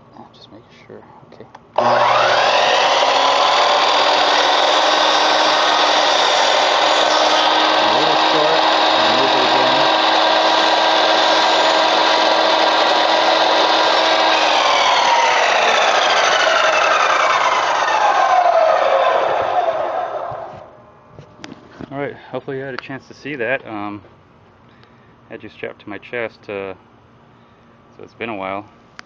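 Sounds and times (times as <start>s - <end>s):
miter saw cutting wood: 1.8s - 20.7s.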